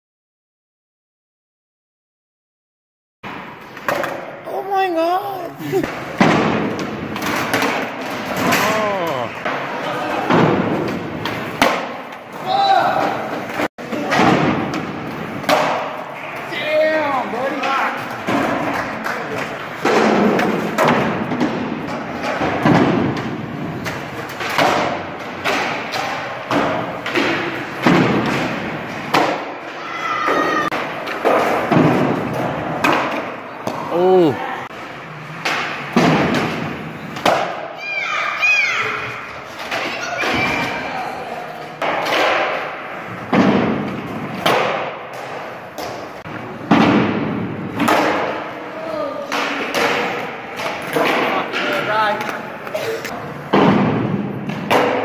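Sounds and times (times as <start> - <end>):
skateboards rolling on gym floor: 3.2 - 55.0
skateboard slaps and thuds: 5.8 - 16.6, 17.5 - 33.9, 35.3 - 37.7, 41.8 - 48.6, 49.2 - 52.6, 53.5 - 55.0.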